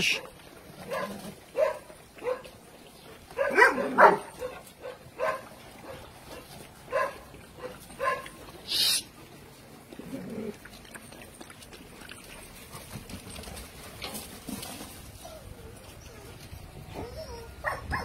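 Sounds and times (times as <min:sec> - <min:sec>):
dogs barking and yelping: 0:00.1 - 0:09.2, 0:10.2 - 0:18.0
high hiss-like scrape: 0:08.6 - 0:09.1.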